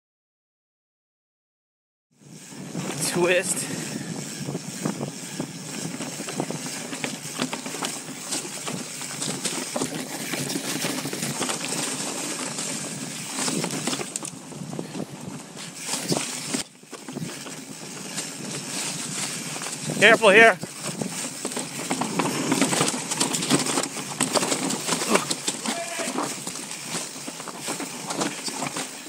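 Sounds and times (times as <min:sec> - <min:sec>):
bike tyres on dirt trail: 0:02.1 - 0:29.0
bike clicks and rattles: 0:02.2 - 0:29.0.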